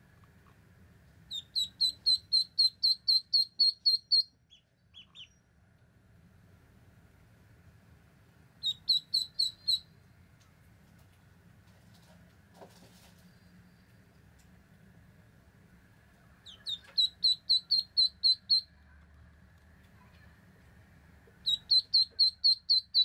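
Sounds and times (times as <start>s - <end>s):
ducklings peeping: 1.3s - 5.4s, 8.6s - 10.0s, 16.4s - 18.8s, 21.3s - 23.0s.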